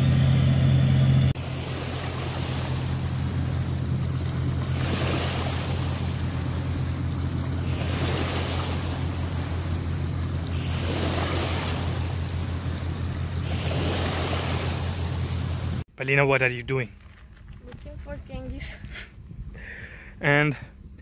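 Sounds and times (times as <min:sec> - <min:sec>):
low hum: 0:00.0 - 0:15.9
waves washing onto pebbles: 0:01.4 - 0:15.9.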